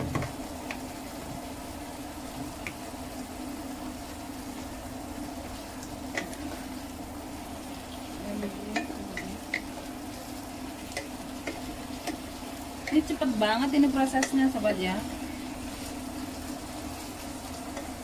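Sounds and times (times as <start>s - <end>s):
cucumber slices sizzling in pan: 0.0s - 18.0s
steady low hum: 0.0s - 18.0s
wooden spatula tapping pan: 6.1s - 6.4s, 8.7s - 9.9s, 10.9s - 13.2s, 14.0s - 14.5s.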